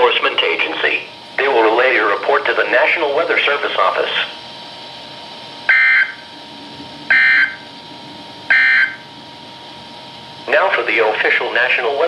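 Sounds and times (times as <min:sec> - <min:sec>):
faint radio tone and hiss: 0:00.0 - 0:04.5, 0:10.4 - 0:12.0
buzzy digital data bursts: 0:07.1 - 0:07.7, 0:08.5 - 0:09.0.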